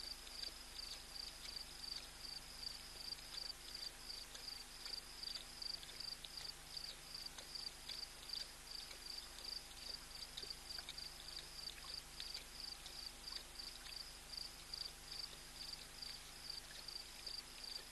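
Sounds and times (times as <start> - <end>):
lion lapping water: 0.0 - 17.9
insect chirping: 0.3 - 7.7, 11.9 - 17.9.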